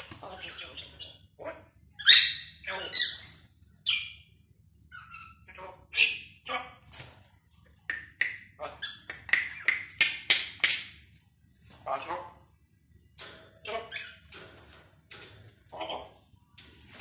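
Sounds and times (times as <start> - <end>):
parrot squawking: 0.0 - 4.3, 4.9 - 6.8.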